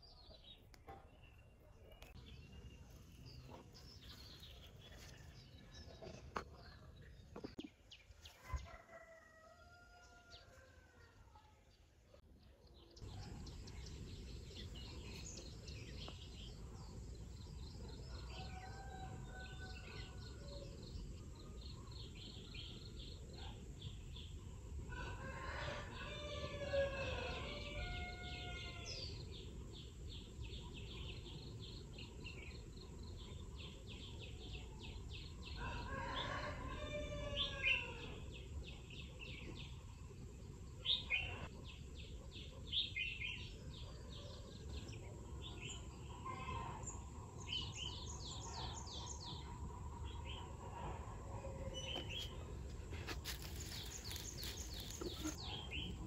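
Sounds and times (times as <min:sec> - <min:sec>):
rooster crowing: 0:08.5 - 0:10.6, 0:25.0 - 0:29.0, 0:35.6 - 0:38.1
small birds chirping: 0:51.4 - 0:56.0.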